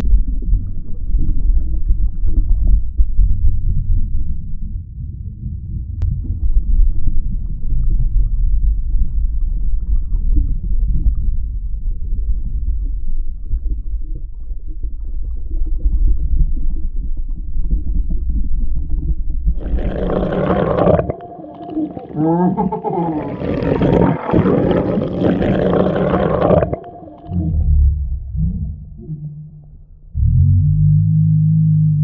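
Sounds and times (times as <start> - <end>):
underwater rumble and sloshing: 0.0 - 31.1.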